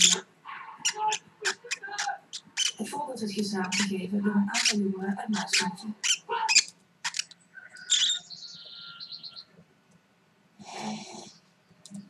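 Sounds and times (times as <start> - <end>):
bird chirping: 0.0 - 0.2, 0.8 - 9.6.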